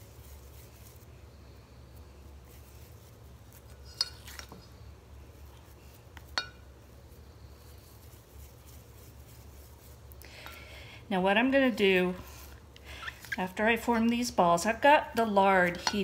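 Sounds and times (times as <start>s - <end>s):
low steady hum: 0.0s - 16.0s
light clinks against glass bowl: 6.3s - 6.7s.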